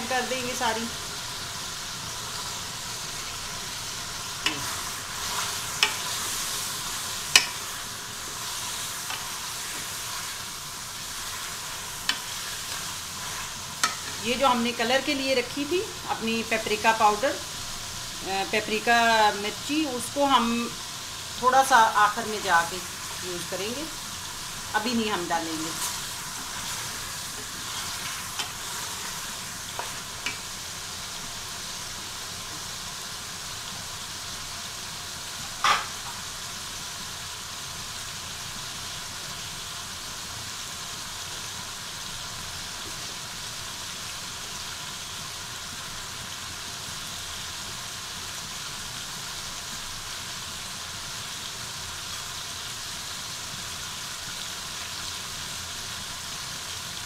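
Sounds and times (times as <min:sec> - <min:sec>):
chicken sizzling in oil: 0:00.0 - 0:57.0.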